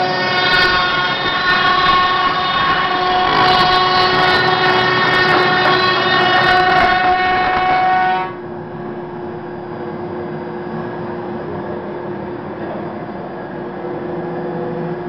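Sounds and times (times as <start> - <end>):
router spindle whine cutting foam: 0.0 - 8.3.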